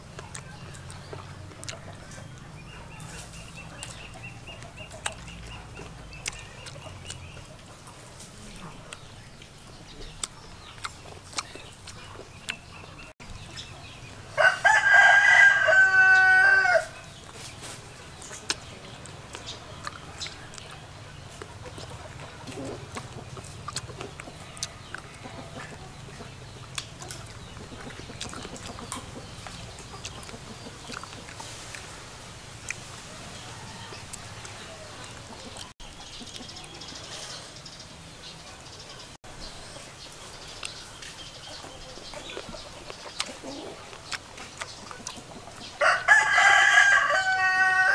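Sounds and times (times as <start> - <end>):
faint eating clicks: 0.0 - 8.0, 8.6 - 14.0, 18.1 - 31.9, 33.9 - 37.0, 40.4 - 45.8
rooster crowing: 14.4 - 17.0, 45.8 - 47.9.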